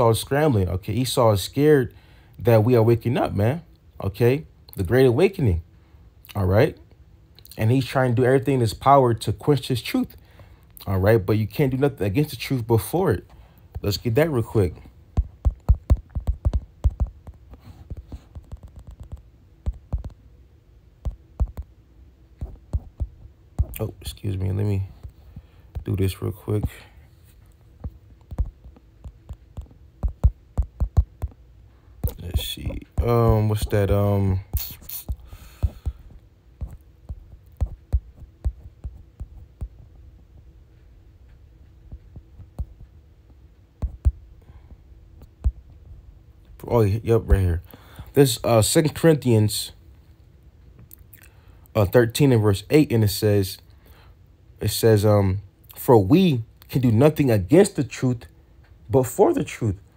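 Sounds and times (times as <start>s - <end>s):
faint steady hum: 0.0s - 59.9s
light taps and soft thumps: 14.8s - 20.2s, 22.4s - 23.8s, 24.8s - 31.4s, 34.5s - 46.0s
light clicks and taps: 15.2s - 20.2s.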